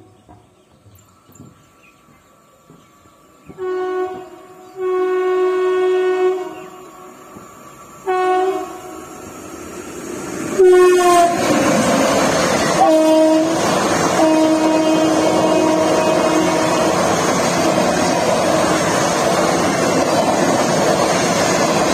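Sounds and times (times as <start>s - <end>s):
train rumble: 0.0s - 21.9s
train air horn blasts: 3.5s - 7.1s, 8.0s - 9.2s, 10.6s - 11.6s, 12.7s - 17.2s.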